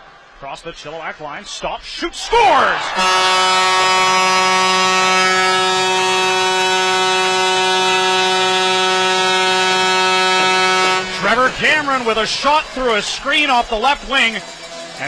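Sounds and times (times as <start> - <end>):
goal horn blaring: 2.8 - 12.6.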